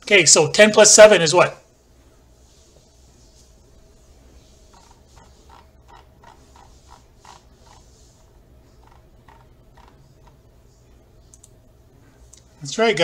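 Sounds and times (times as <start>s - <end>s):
steady low hum: 0.0s - 13.0s
mouse scroll wheel ticking: 4.7s - 7.9s, 8.8s - 10.4s.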